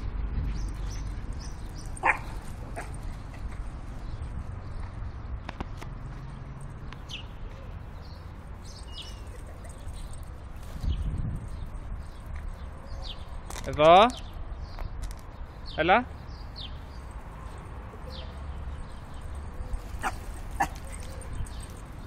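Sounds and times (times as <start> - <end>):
dog barking sharply: 2.0 - 2.9, 20.0 - 21.0.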